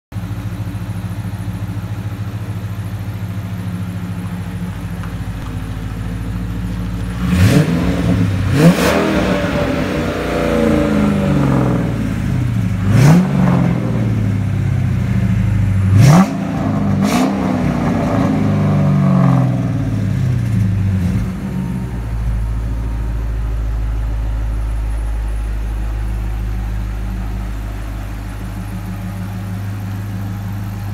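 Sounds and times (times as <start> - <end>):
car engine idling: 0.1 - 30.9
engine revving: 7.0 - 30.9.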